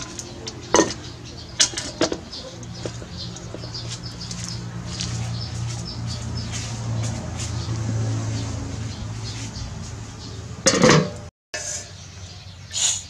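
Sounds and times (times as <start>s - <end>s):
steel bowl clinking against pot: 0.0s - 3.7s
birds chirping: 0.0s - 10.8s, 11.6s - 13.0s.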